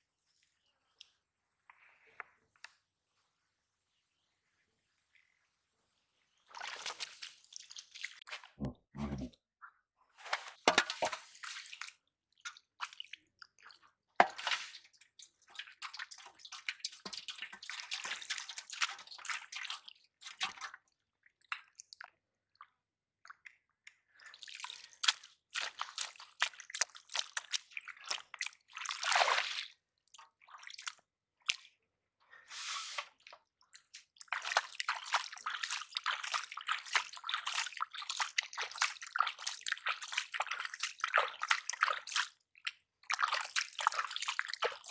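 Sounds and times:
hands squelching in wet mud: 0:06.5 - 0:08.5, 0:10.3 - 0:20.9, 0:22.6 - 0:44.9.

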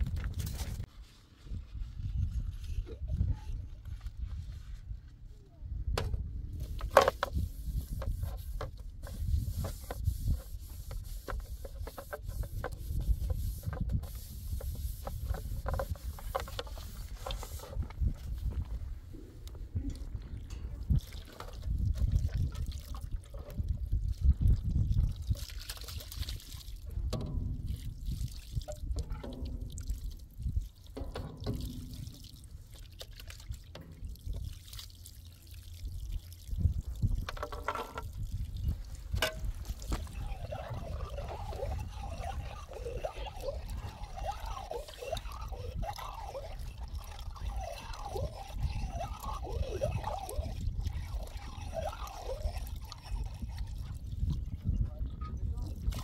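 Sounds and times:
water gurgling into glasses: 0:39.6 - 0:54.7.

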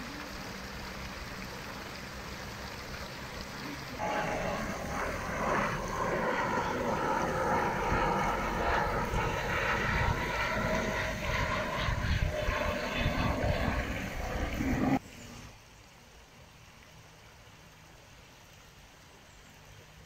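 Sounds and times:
engine drone: 0:00.0 - 0:15.4
low rumble: 0:03.9 - 0:15.0.

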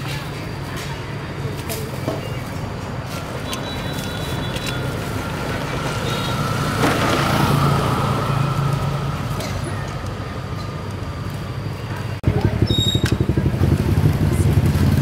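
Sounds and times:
vehicle engine running: 0:12.2 - 0:15.0.

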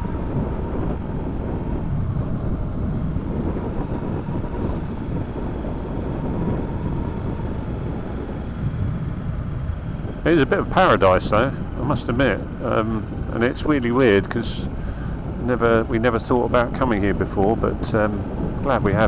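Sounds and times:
motorcycle engine: 0:00.0 - 0:19.0
road noise: 0:00.0 - 0:19.0
wind on microphone: 0:00.0 - 0:19.0.

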